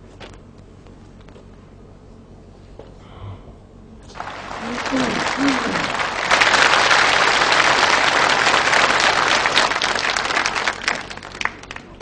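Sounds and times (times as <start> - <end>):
audience applause: 4.1 - 12.0.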